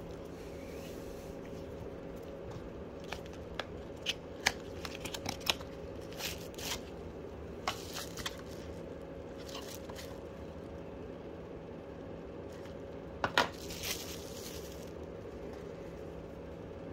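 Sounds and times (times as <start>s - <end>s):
plastic sleeve crinkling: 3.0s - 6.9s, 7.6s - 10.2s, 13.5s - 15.1s.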